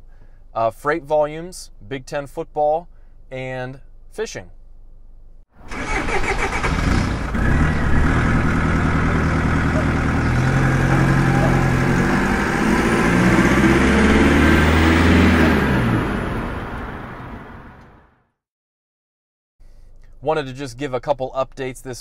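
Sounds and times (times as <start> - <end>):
truck engine starting and revving: 5.6 - 18.2.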